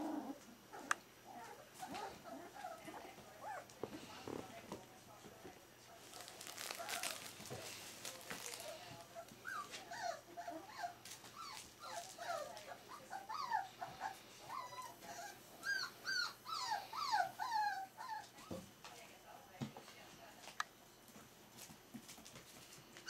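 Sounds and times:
newspaper rustling: 5.9 - 9.1
puppies whimpering and yipping: 9.4 - 18.4.

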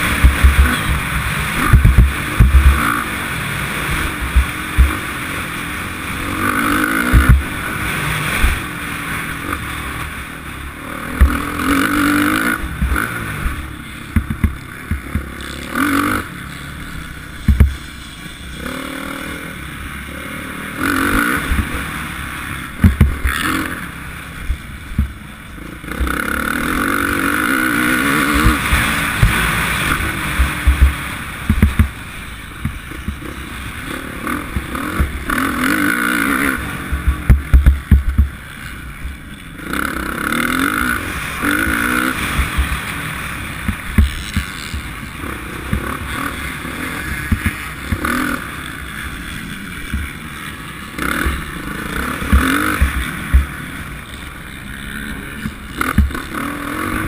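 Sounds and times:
low thumps of bike on bumps: 0.0 - 18.5, 20.9 - 57.0
motorcycle engine revving: 0.0 - 57.0.

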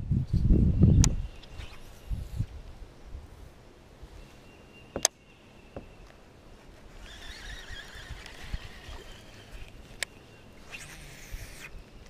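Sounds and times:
fishing reel click: 7.1 - 10.1.

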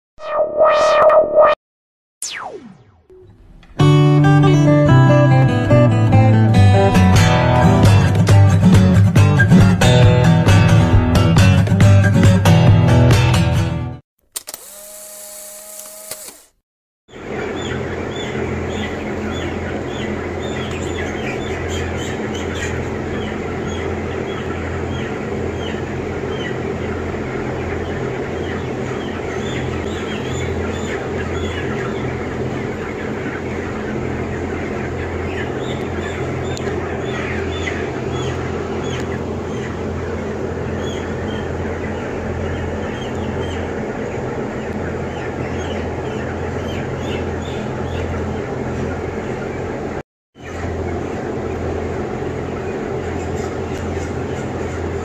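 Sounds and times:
chickens peeping: 17.1 - 55.0
ventilation machine hum: 17.1 - 55.0.

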